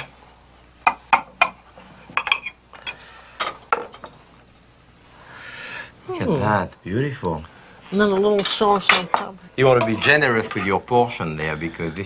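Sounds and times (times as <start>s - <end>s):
metal utensils clinking on plate: 8.2s - 10.8s.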